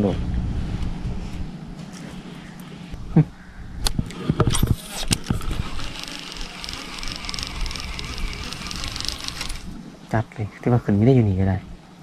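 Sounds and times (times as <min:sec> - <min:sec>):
fishing reel whirring: 0:04.5 - 0:09.8.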